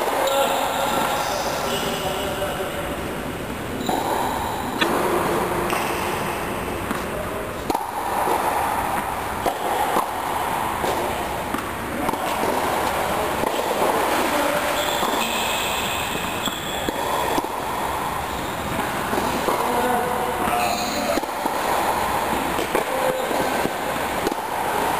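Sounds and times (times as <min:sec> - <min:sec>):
noisy indoor background: 0:00.0 - 0:24.9
tennis ball hits: 0:20.4 - 0:24.9.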